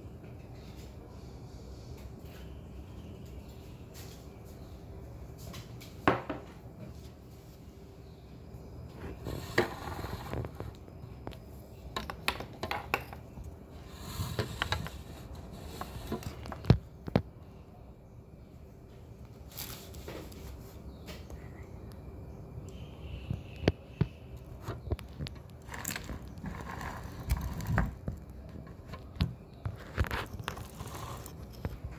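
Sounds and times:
scraping: 12.0s - 16.8s, 24.4s - 31.9s.

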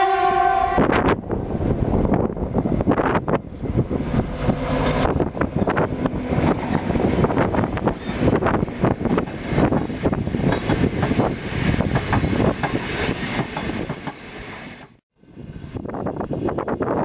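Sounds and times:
train wheels clattering over rail joints: 3.4s - 15.0s.

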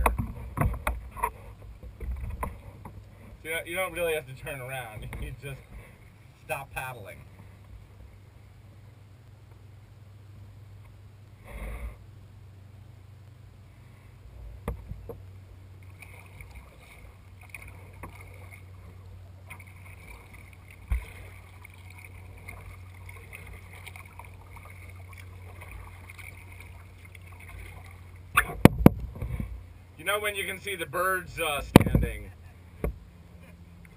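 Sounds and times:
steady low rumble: 0.0s - 33.9s
paddle splashing in water: 15.8s - 29.7s
paddle knocking against hull: 28.4s - 29.6s, 31.7s - 32.2s.

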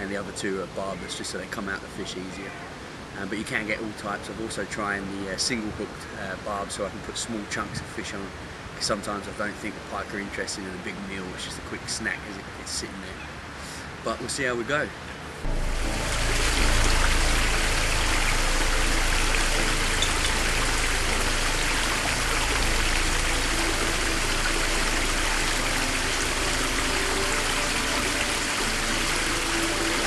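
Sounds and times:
water rushing down cascade: 0.0s - 30.0s.

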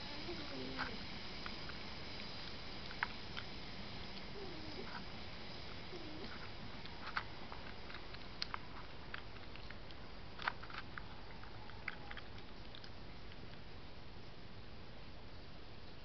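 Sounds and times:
steady hiss: 0.0s - 16.0s
badger chewing crunches: 5.6s - 13.7s.

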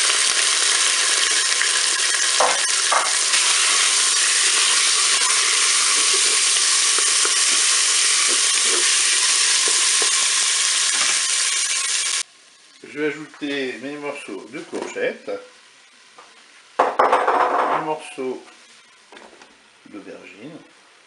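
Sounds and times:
chicken sizzling in hot oil: 0.0s - 13.0s.

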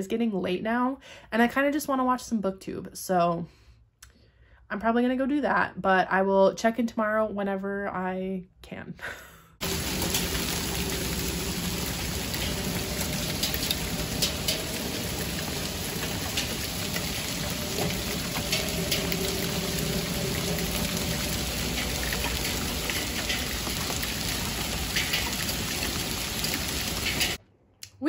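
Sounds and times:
hail hissing on grass and pavement: 9.6s - 27.4s
hailstones ticking: 9.6s - 27.4s.

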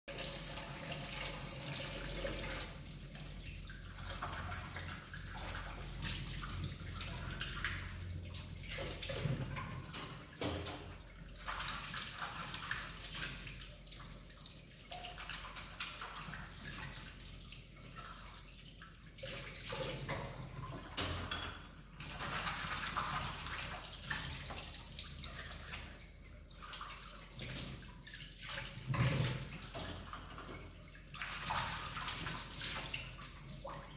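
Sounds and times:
tap water splashing into sink: 0.1s - 33.9s.

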